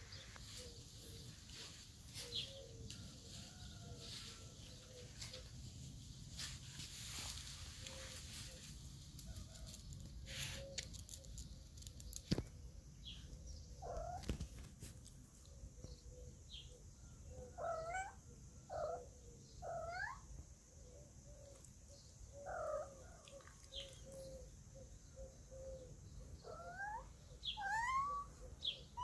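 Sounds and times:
cats meowing: 27.6s - 28.4s.

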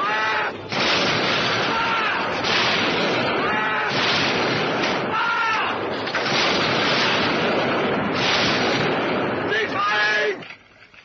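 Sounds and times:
battle noise roar: 1.5s - 4.3s.

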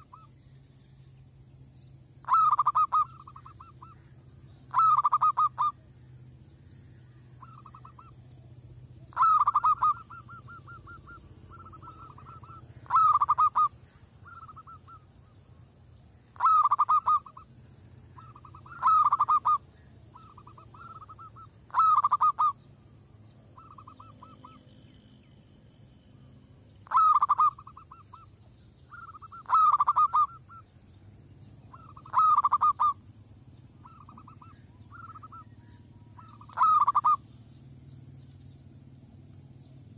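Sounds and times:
dove cooing: 0.0s - 0.4s, 2.2s - 4.0s, 4.7s - 5.8s, 7.4s - 15.4s, 16.4s - 17.5s, 18.1s - 22.6s, 23.6s - 24.6s, 26.8s - 28.3s, 28.9s - 30.7s, 31.6s - 33.1s, 33.8s - 37.2s.

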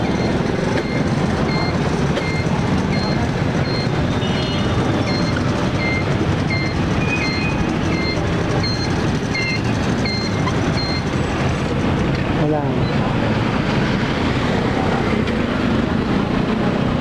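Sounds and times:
short high electronic beeps: 0.1s - 11.1s.

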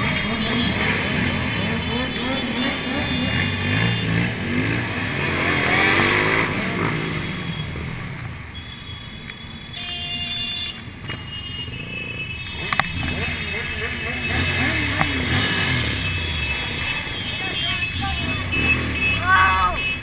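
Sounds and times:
motorcycle engine: 0.0s - 8.7s, 10.7s - 20.0s.

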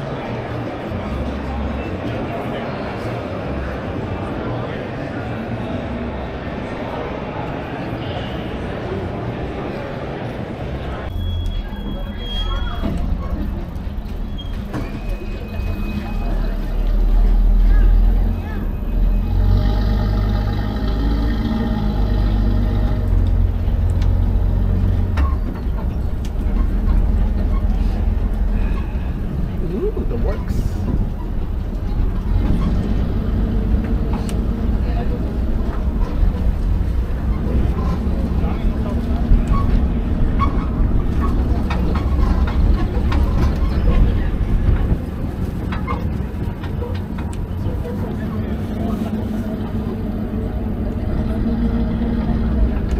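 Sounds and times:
tram engine drone: 0.0s - 52.9s
passenger car rattling: 12.1s - 52.9s.

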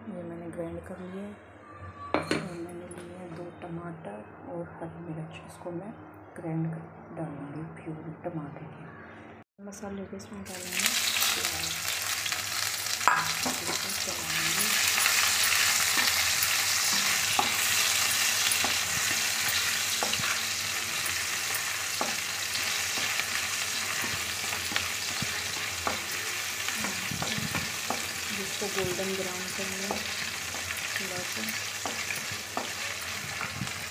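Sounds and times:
onion sizzling in hot oil: 10.5s - 33.9s.

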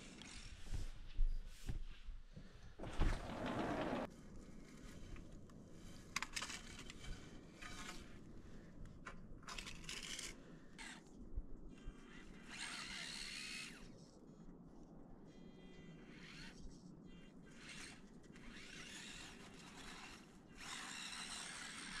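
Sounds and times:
small electric motor whining: 11.7s - 14.1s, 15.3s - 22.0s.

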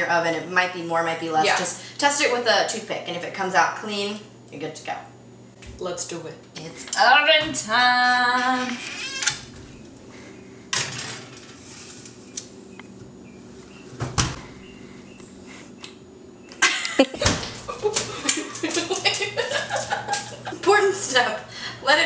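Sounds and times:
oven door shutting: 13.9s - 14.6s.

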